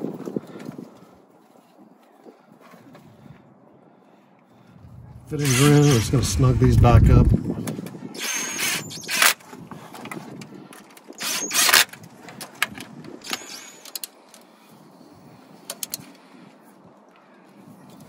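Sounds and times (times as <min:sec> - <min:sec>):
power driver running: 0:05.3 - 0:07.0
tool handling clicks: 0:15.7 - 0:16.2.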